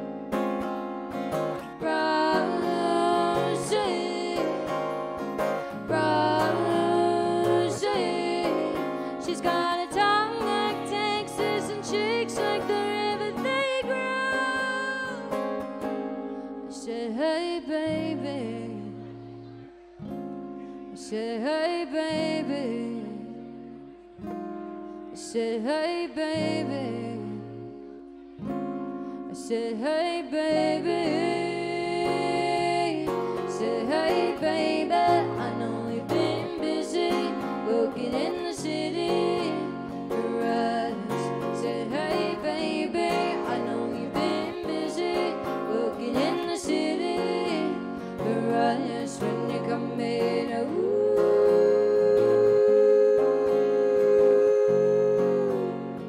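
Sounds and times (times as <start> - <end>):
woman singing: 0.0 - 19.4, 20.9 - 23.8, 25.1 - 28.1, 29.3 - 56.0
acoustic guitar: 0.0 - 56.0.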